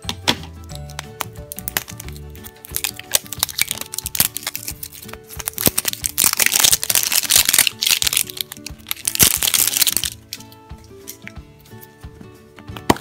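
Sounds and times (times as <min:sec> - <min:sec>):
soft background music: 0:00.0 - 0:13.0
plastic shell clicks: 0:00.1 - 0:05.8
plastic wrap crinkling: 0:00.9 - 0:10.4.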